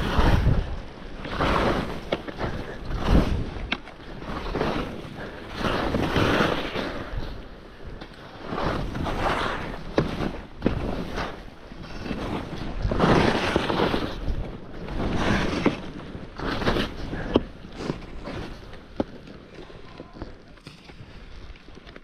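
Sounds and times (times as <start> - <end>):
skis swishing through snow: 0.0 - 19.8
wind on microphone: 0.0 - 21.8.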